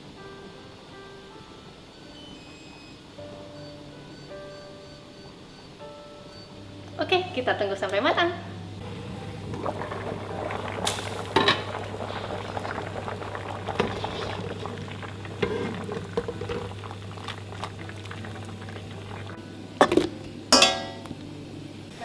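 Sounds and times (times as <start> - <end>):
water boiling in a pan: 8.7 - 22.0
utensils knocking against pans: 19.8 - 21.1.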